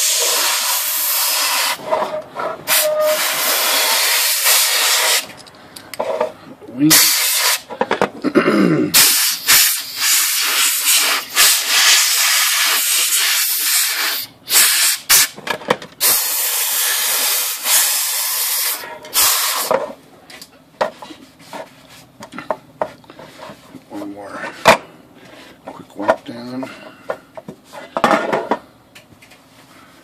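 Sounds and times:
air blow gun hissing: 0.0 - 1.8, 2.7 - 5.3, 6.9 - 7.6, 9.0 - 15.3, 16.0 - 19.7
rubbing and handling sounds: 20.8 - 24.6.

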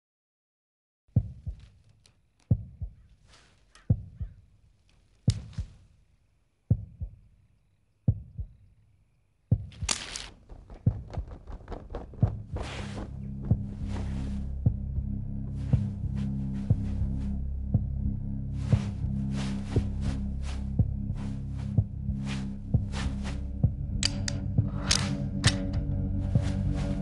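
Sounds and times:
heartbeat thumps: 1.1 - 1.7, 2.5 - 3.2, 3.9 - 4.4, 5.3 - 5.9, 6.7 - 7.3, 8.1 - 8.7, 9.5 - 24.7.

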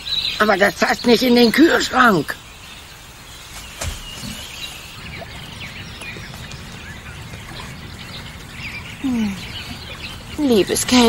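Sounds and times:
small birds chirping: 0.0 - 11.0
low background rumble: 4.0 - 11.0.

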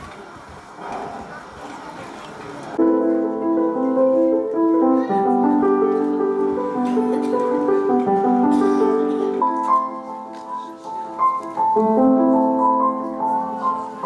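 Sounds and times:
slow piano chords: 2.8 - 14.0.

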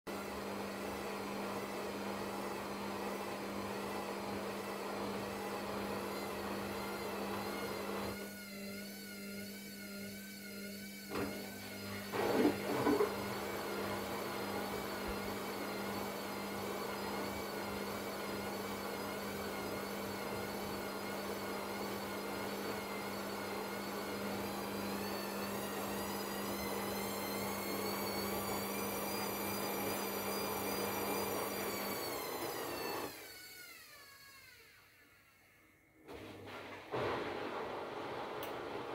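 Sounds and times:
washing machine spinning: 10.5 - 33.3.

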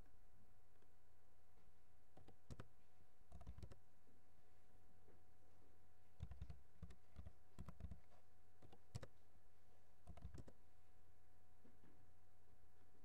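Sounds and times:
keystrokes on computer keyboard: 2.2 - 2.7, 3.3 - 3.8, 6.2 - 9.2, 10.0 - 10.6.

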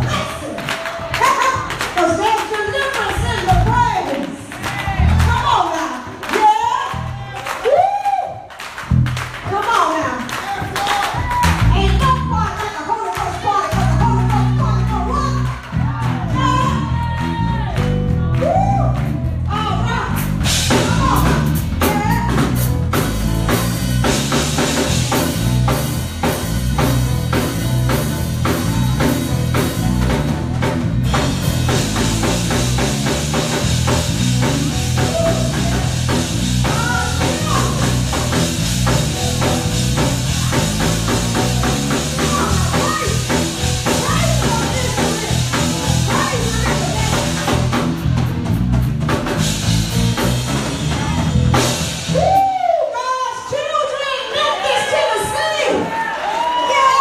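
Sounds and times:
live band playing upbeat music: 8.5 - 53.5.

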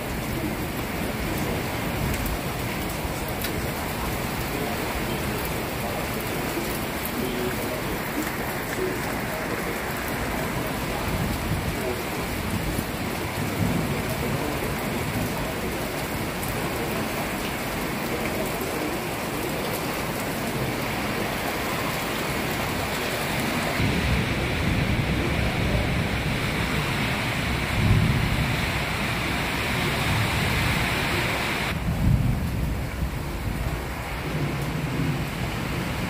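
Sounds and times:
heavy rain pouring: 0.0 - 36.0
low rumble of thunder: 23.8 - 30.5, 31.7 - 36.0.

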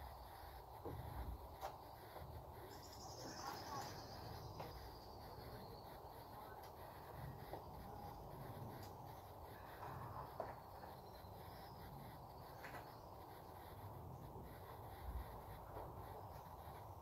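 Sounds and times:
faint bird calls: 0.0 - 17.0.

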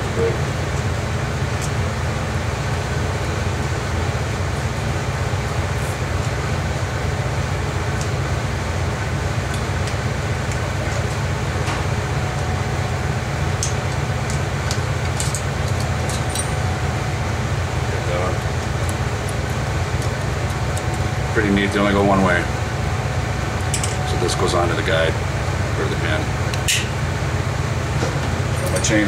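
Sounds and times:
low mechanical hum: 0.0 - 29.0.

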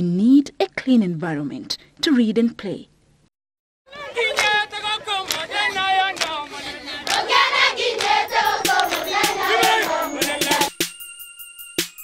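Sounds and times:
children singing together: 3.9 - 10.7
hand claps: 4.2 - 10.7.

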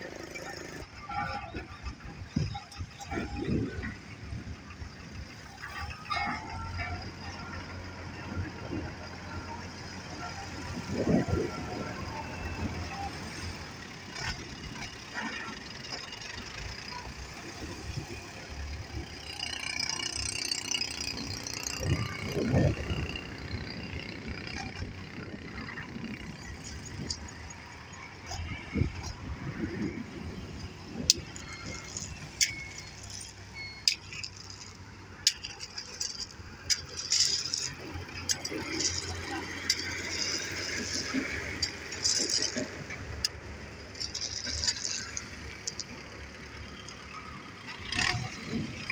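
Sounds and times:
tractor diesel engine running: 0.0 - 48.9
blade pushing soil: 5.4 - 48.9
loose stones rattling: 19.0 - 47.2
fork tines clinking on stones: 31.0 - 47.1.

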